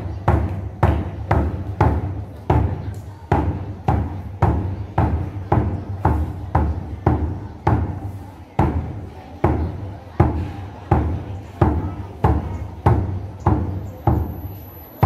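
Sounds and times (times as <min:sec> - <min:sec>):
wooden barrel drum booming: 0:00.1 - 0:08.0, 0:08.6 - 0:14.5.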